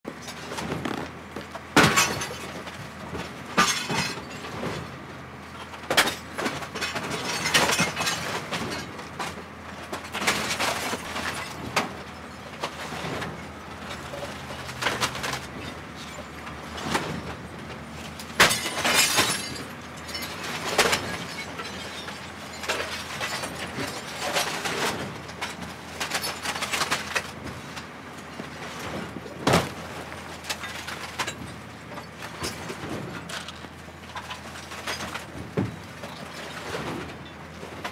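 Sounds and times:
glass shattering: 3.6 - 4.5, 18.4 - 24.0.

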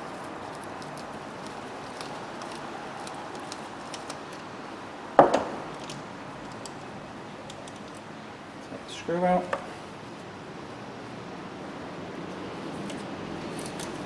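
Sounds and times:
workshop room tone: 0.0 - 14.0.

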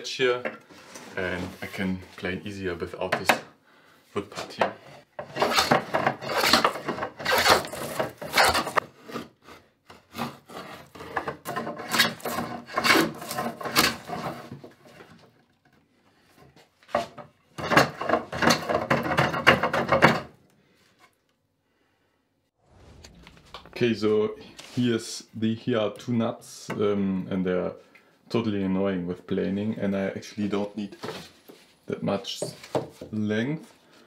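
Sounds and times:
hand plane strokes on wood: 5.2 - 14.6.

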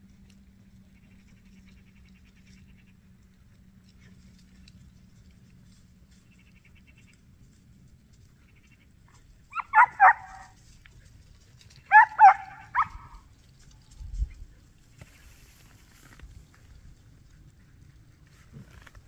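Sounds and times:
dog barking: 9.5 - 10.6, 11.9 - 13.2.

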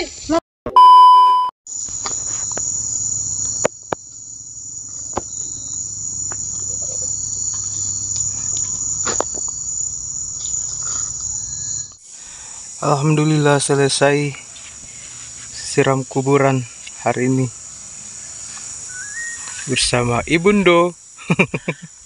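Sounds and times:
electronic test beep: 0.7 - 1.5
insects chorus: 1.7 - 22.0.

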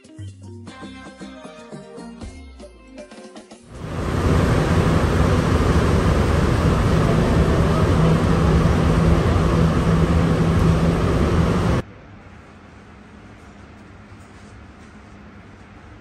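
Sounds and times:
metro car rumble: 3.7 - 11.8
low steady hum: 3.7 - 15.9.

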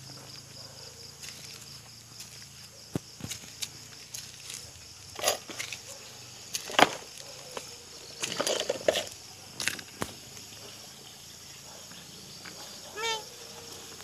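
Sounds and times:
rustling of leafy plant stems: 1.2 - 10.6.

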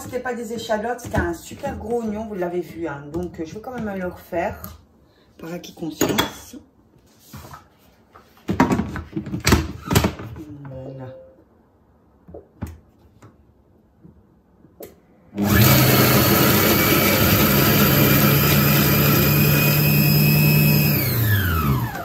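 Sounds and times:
food processor blade motor: 15.4 - 22.0.

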